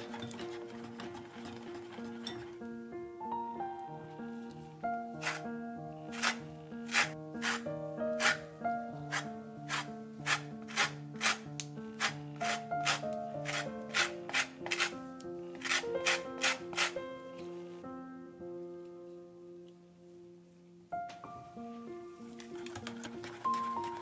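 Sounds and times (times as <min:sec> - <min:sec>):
lemon rind scraped on metal grater: 0:05.2 - 0:05.4, 0:06.1 - 0:07.6, 0:08.2 - 0:08.4, 0:09.1 - 0:11.4, 0:12.0 - 0:15.0, 0:15.6 - 0:17.0.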